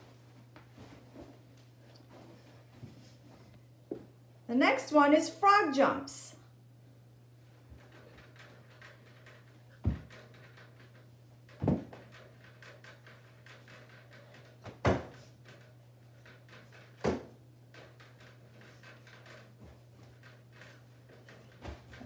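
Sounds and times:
heavy thumps on carpeted floor: 11.6 - 12.0.

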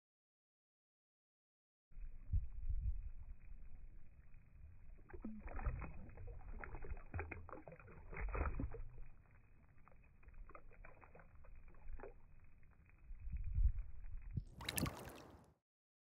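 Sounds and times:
water lapping and sloshing: 3.0 - 13.0, 14.3 - 15.5
fish splashing at surface: 9.8 - 12.3, 14.5 - 15.4.

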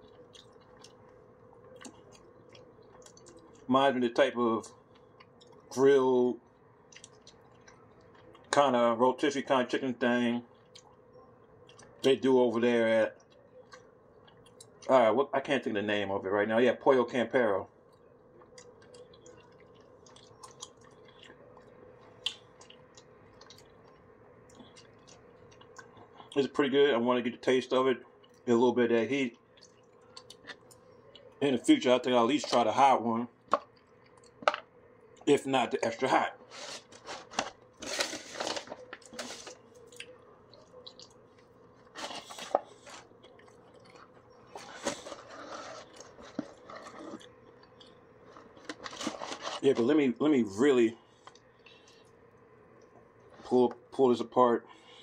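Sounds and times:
close-up chewing: 0.0 - 3.7, 4.6 - 5.8, 6.4 - 8.6, 10.5 - 12.1, 13.2 - 14.9, 17.8 - 26.4, 29.4 - 31.4, 33.4 - 35.3, 36.4 - 49.6.

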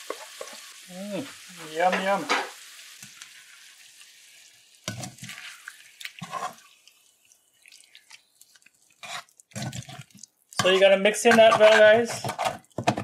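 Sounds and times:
hot oil sizzling: 0.0 - 12.9
metal spoon scraping pot: 9.0 - 12.6.

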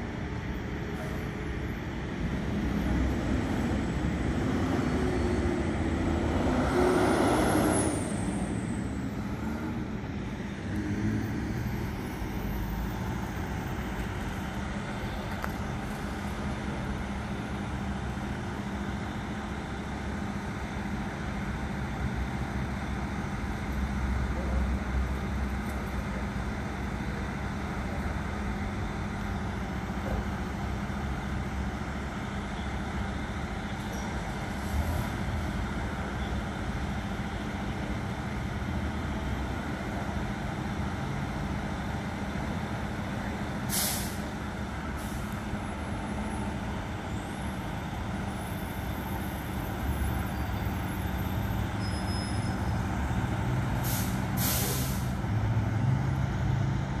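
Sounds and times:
air brake release hiss: 43.7 - 44.3, 53.8 - 55.2.

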